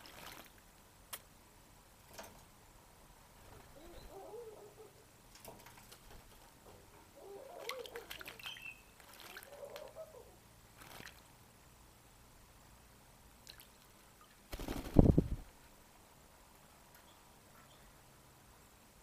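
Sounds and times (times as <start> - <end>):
faint bird calls: 3.6 - 5.1, 7.1 - 10.4
parrot wings flapping: 14.5 - 15.5.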